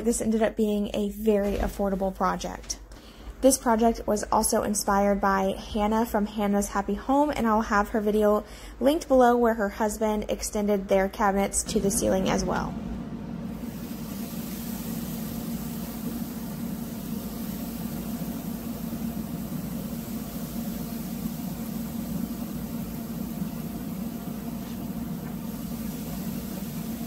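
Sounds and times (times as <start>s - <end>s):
fan motor humming: 10.5s - 27.0s.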